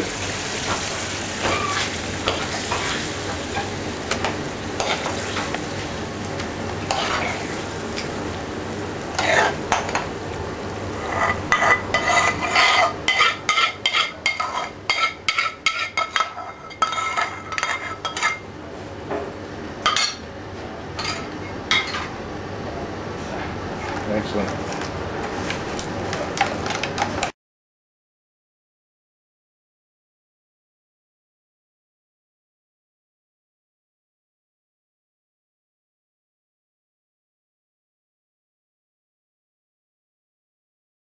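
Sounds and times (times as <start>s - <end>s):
curry sizzling in a pan: 0.0s - 18.5s
ladle scraping a metal pan: 6.9s - 7.5s, 11.0s - 18.4s.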